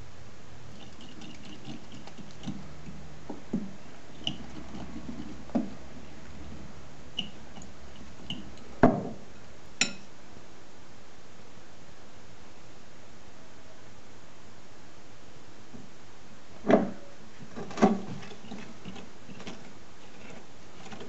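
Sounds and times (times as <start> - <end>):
metal spoon scraping glass bowl: 0.7 - 3.0, 4.1 - 5.5, 7.2 - 8.6, 18.1 - 21.0
spoon clinking against glass: 9.8 - 10.1.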